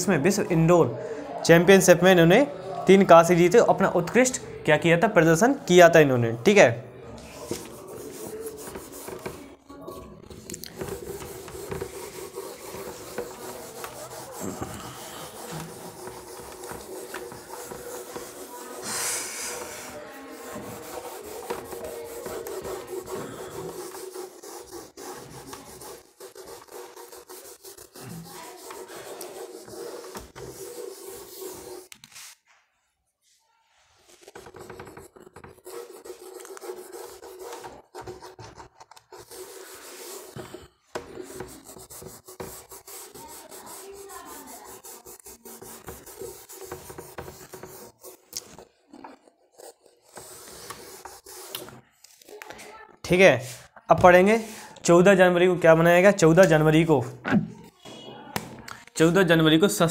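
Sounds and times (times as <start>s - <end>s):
duster rubbing a whiteboard: 7.2s - 32.4s, 33.9s - 51.8s.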